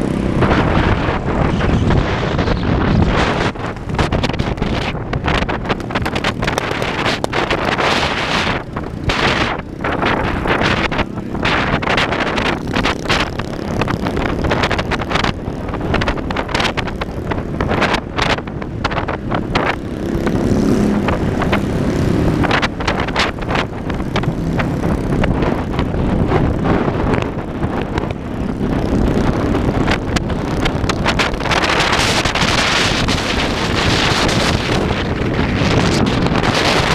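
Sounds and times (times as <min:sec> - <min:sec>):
road and engine noise: 0:00.0 - 0:36.9
wind buffeting microphone: 0:00.0 - 0:36.9.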